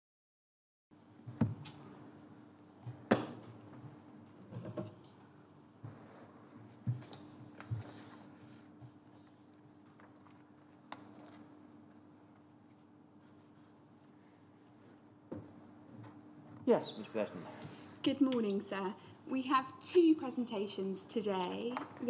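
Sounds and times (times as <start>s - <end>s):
paper rustling: 6.8s - 13.7s.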